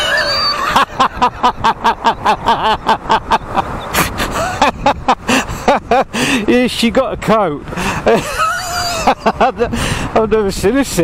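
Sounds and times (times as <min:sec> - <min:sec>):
man laughing hard: 0:00.0 - 0:06.5, 0:07.8 - 0:09.9
road and wind noise: 0:00.0 - 0:11.0.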